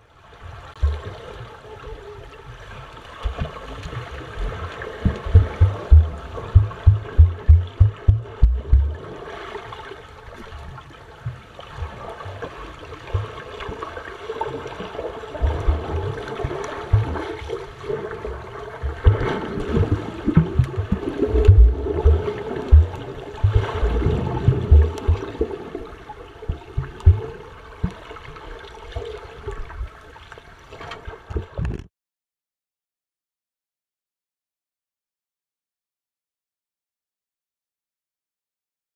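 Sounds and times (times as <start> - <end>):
low thuds underwater: 0.8 - 1.3, 3.2 - 9.2, 13.1 - 13.4, 15.4 - 25.9, 26.5 - 28.0
muffled underwater churning: 0.8 - 2.5, 3.2 - 9.3, 12.9 - 13.8, 14.4 - 28.4.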